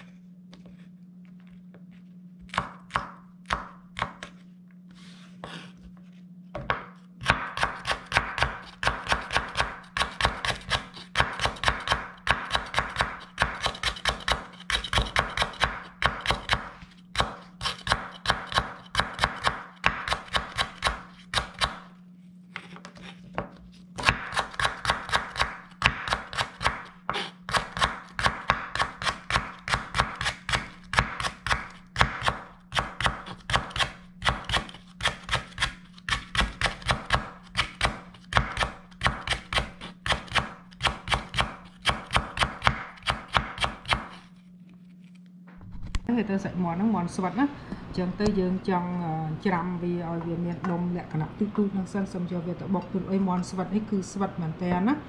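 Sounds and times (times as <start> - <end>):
low steady hum: 0.0 - 55.0
knife chopping on wooden board: 6.6 - 21.8, 23.4 - 44.2.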